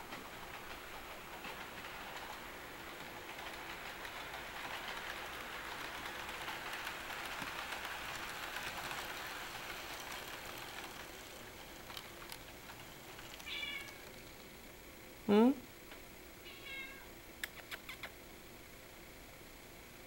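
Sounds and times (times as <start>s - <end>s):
model train wheels rattling on rails: 0.0s - 14.7s
sharp clicks: 17.4s - 18.2s.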